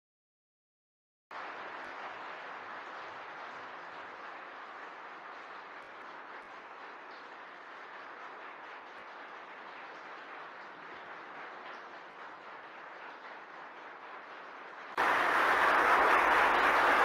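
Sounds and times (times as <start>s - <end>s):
crowd hubbub: 15.0s - 17.0s.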